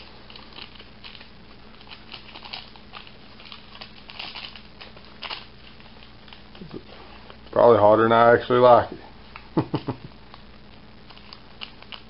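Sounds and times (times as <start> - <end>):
packet crinkling: 0.0 - 7.6, 10.2 - 12.0.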